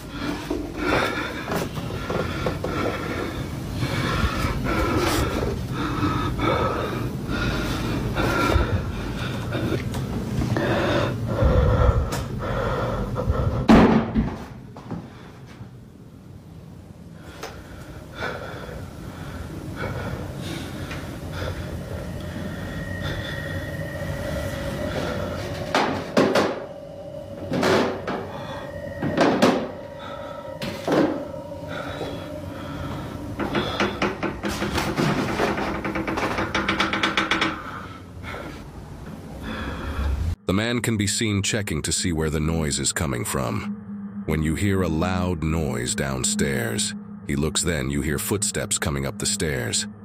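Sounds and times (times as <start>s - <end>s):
steady low rumble: 0.0s - 13.7s, 14.5s - 37.0s, 37.6s - 50.0s
person breathing heavily: 0.0s - 14.0s, 17.1s - 40.4s
faint high whine: 14.8s - 35.4s, 39.0s - 50.0s.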